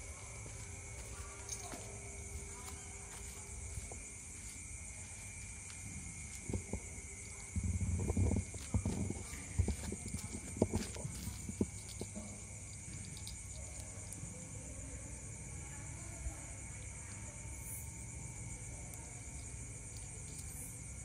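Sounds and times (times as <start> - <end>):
footsteps on concrete: 0.0 - 12.6
low bumps and rumbling: 5.6 - 12.8.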